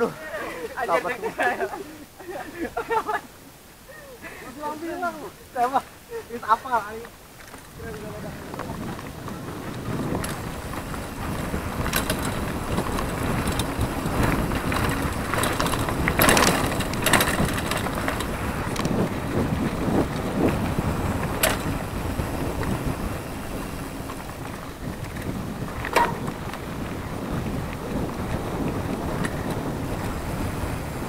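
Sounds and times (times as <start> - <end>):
tyres rumbling on dirt: 4.5 - 31.0
bike rattles and knocks: 7.0 - 31.0
wind on microphone: 7.6 - 31.0.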